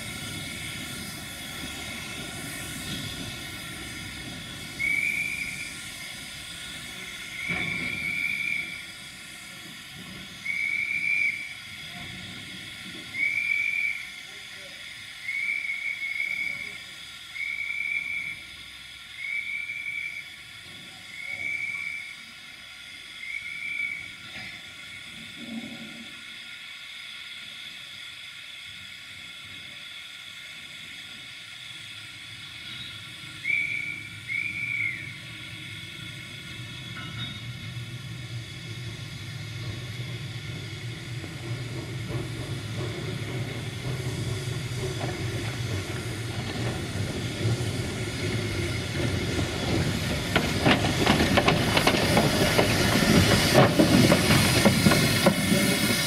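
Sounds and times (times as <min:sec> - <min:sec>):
steam locomotive hissing: 0:00.0 - 0:56.0
train running noise: 0:00.0 - 0:56.0
short high whistle toots: 0:04.8 - 0:05.8, 0:10.4 - 0:11.6, 0:13.1 - 0:14.1, 0:32.7 - 0:35.2.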